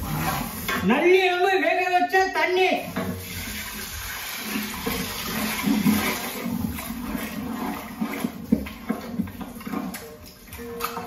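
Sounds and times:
stock pouring and splashing into pot: 2.9 - 10.2.

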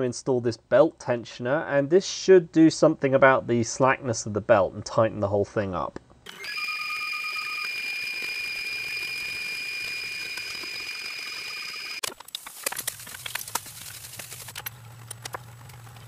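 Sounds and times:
three d printer whine: 6.3 - 12.1
parts clicking and tapping: 12.0 - 16.0
low hum: 12.7 - 16.0.

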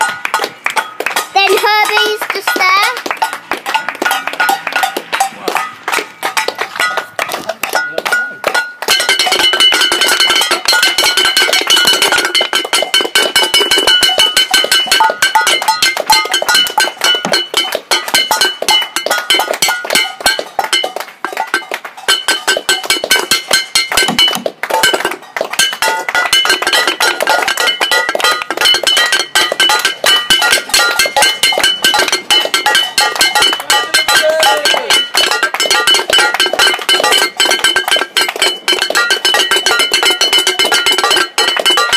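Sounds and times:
metal pan clanging: 0.0 - 41.9.

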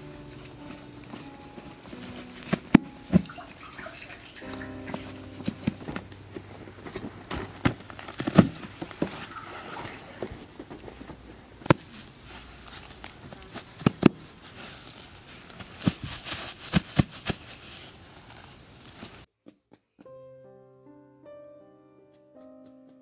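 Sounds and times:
soft piano music: 0.0 - 10.6, 20.0 - 23.0
grass turf rustling: 0.0 - 19.3
hands patting turf onto soil: 0.0 - 19.8.

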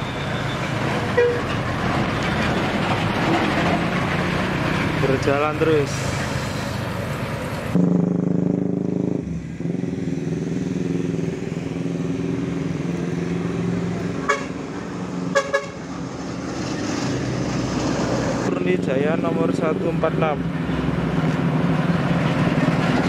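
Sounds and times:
bus diesel engine drone: 0.0 - 23.0
bus horn toots: 1.1 - 1.5, 14.2 - 14.6, 15.3 - 15.9.

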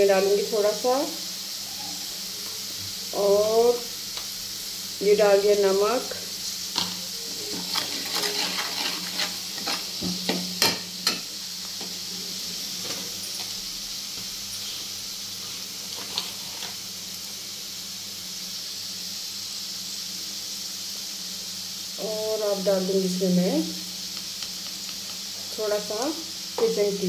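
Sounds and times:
masala sizzling in oil: 0.0 - 27.0
steel ladle scraping pan: 6.7 - 11.3, 15.9 - 16.8.

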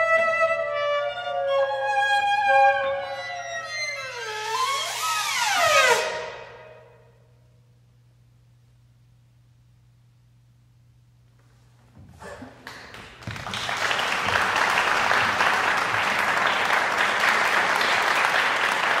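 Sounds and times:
faint low hum: 6.2 - 19.0
audience applause: 12.4 - 19.0.

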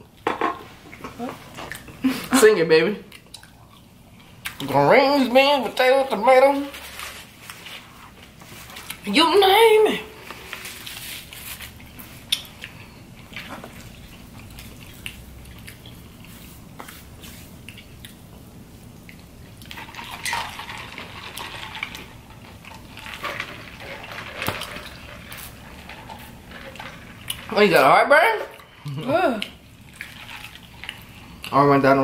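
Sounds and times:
rustling of cardboard and paper: 6.6 - 8.9.

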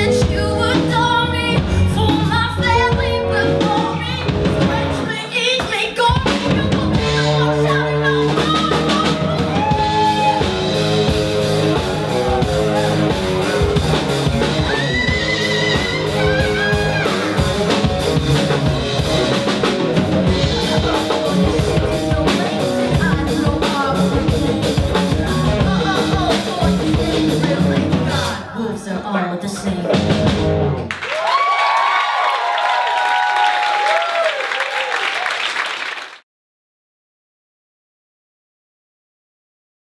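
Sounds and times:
woman singing: 0.0 - 10.2, 14.6 - 17.2, 20.4 - 30.1
live rock band playing: 0.0 - 30.9.

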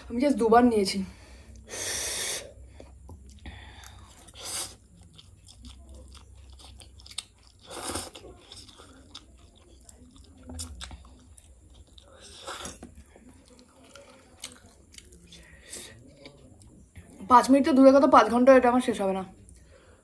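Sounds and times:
person chewing noodles: 1.5 - 17.1.

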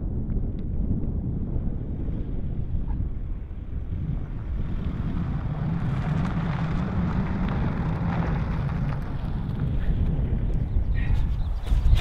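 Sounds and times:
wind rumbling on microphone: 0.0 - 12.0
van driving past: 3.8 - 10.4.

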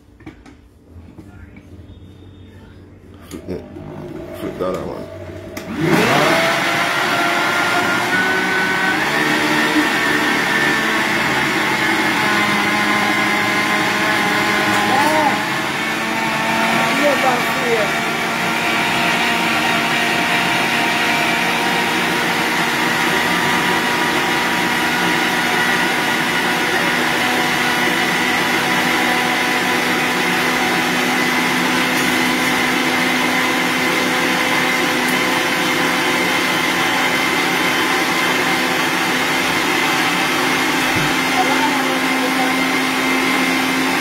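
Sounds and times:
blender motor whining: 3.3 - 44.0.

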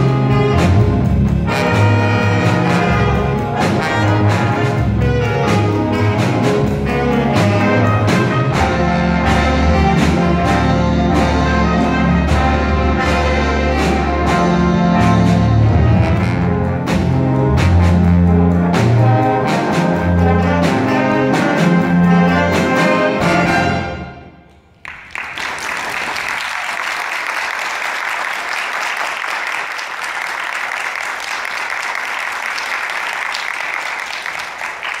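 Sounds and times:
jazz band playing: 0.0 - 24.4
audience applause: 24.7 - 35.0.

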